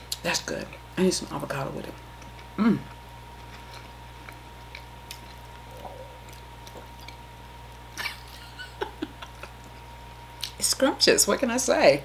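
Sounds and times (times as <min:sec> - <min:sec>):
faint electrical hum: 0:00.0 - 0:12.0
person chewing food: 0:02.1 - 0:08.0.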